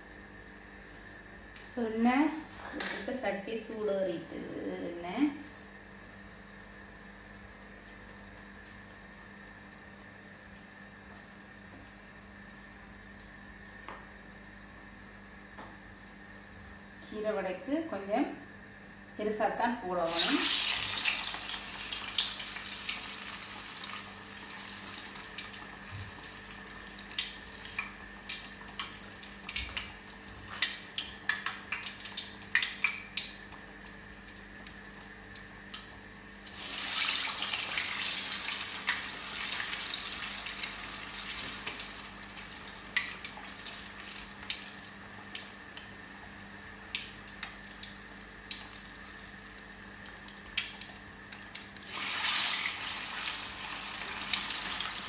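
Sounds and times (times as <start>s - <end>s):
fritters sizzling in hot oil: 20.0s - 46.0s, 51.8s - 55.0s
oil crackles and pops: 20.1s - 55.0s.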